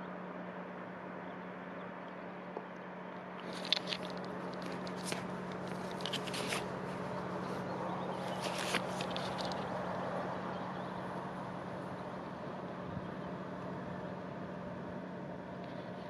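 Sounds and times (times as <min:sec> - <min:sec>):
steady low hum: 0:00.0 - 0:16.0
hands handling camera clicks: 0:03.4 - 0:07.0, 0:08.2 - 0:09.7.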